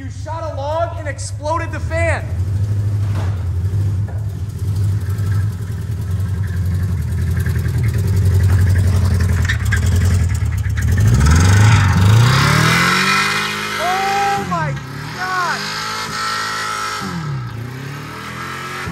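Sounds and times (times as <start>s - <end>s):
car engine knocking: 0.3s - 14.0s.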